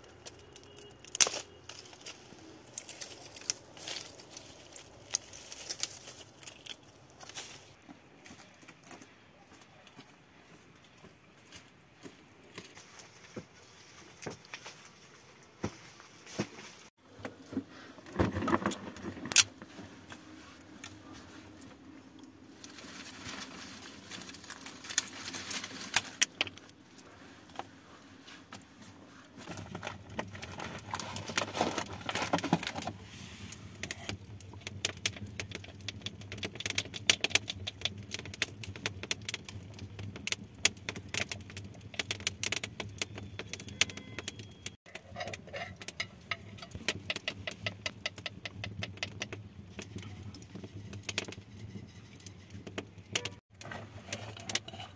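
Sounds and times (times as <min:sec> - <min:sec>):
campfire embers crackling: 0:00.0 - 0:10.0, 0:16.7 - 0:54.9
steel rod scraping through coals: 0:41.0 - 0:54.9.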